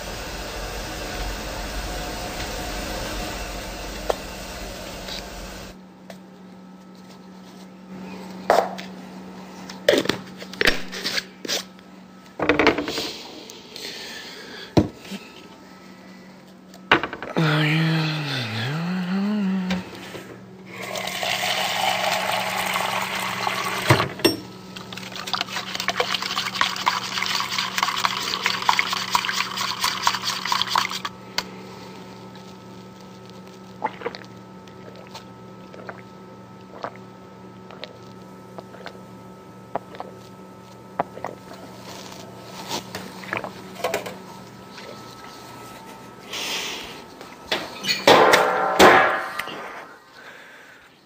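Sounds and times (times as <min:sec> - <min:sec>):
water running hard: 0:00.0 - 0:05.8, 0:20.7 - 0:24.1, 0:25.0 - 0:31.2.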